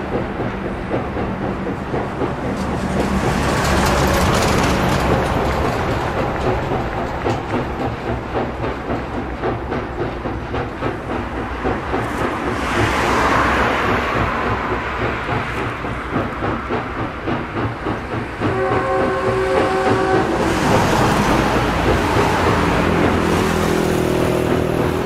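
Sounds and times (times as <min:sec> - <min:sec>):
steam locomotive exhaust beating: 0:00.0 - 0:25.0
steam whistle: 0:18.5 - 0:20.5.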